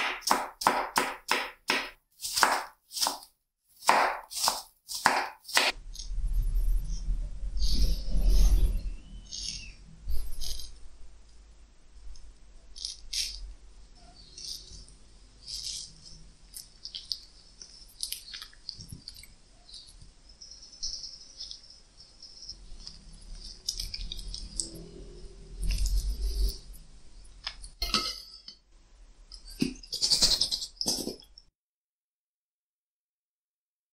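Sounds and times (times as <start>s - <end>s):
knife scoring mango: 0.0s - 5.8s
metal spoon scraping: 5.7s - 10.9s, 12.8s - 13.4s, 14.0s - 26.8s, 27.4s - 28.6s, 29.3s - 31.4s.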